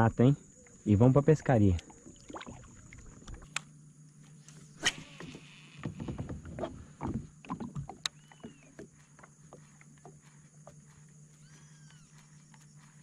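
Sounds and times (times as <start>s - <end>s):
paddle knocking on plastic kayak: 5.8s - 9.0s.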